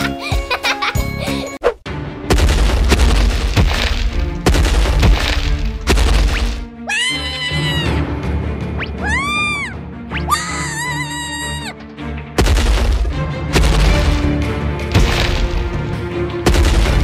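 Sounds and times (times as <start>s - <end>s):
background music: 0.0s - 17.0s
deep booming stomps: 2.2s - 6.4s, 12.3s - 17.0s.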